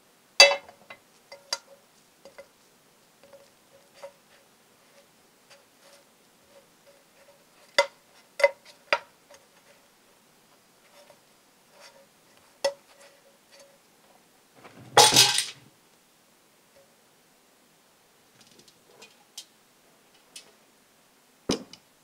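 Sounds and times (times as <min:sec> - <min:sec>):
dishes clattering: 0:14.6 - 0:15.6.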